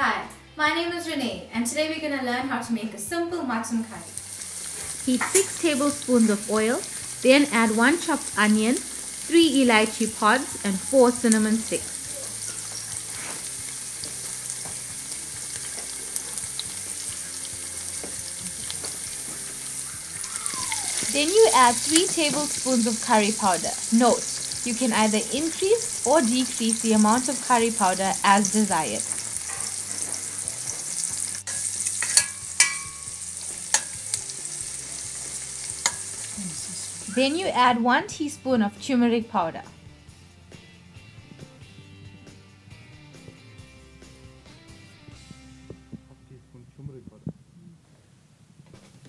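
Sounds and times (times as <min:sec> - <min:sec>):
onion frying in hot oil: 0:03.9 - 0:37.8
spoon knocking and scraping a pan: 0:04.8 - 0:05.6, 0:12.3 - 0:15.0, 0:15.6 - 0:19.6, 0:21.0 - 0:23.6, 0:28.4 - 0:34.2, 0:35.1 - 0:36.3.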